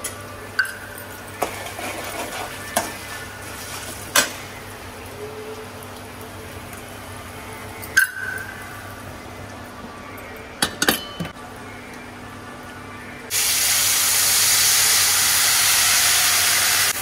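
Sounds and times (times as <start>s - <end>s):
faint oil sizzle: 0.0s - 9.7s, 13.3s - 17.0s
spoon stirring frying food: 1.0s - 4.6s.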